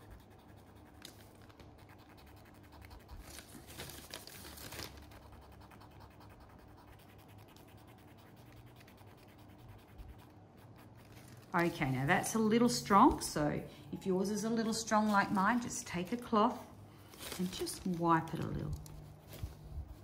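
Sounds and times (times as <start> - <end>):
cotton bud scratching canvas: 0.0 - 13.5.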